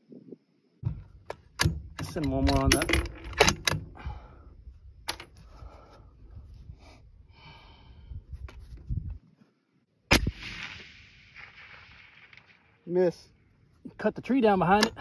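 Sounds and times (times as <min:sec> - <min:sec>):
rifle shot: 0:10.1 - 0:12.9.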